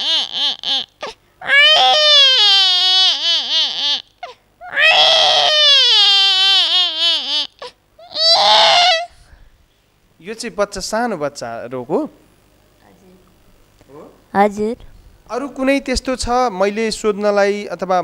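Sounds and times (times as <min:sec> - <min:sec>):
woman imitating baby crying: 0:00.0 - 0:09.2.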